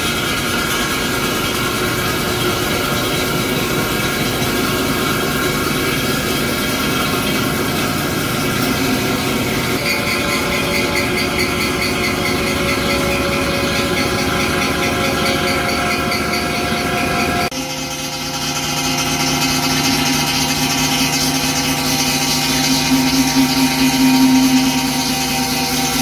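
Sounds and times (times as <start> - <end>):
boring machine cutting steel: 0.0 - 26.0
pulsing high-pitched cutting sound: 8.8 - 26.0.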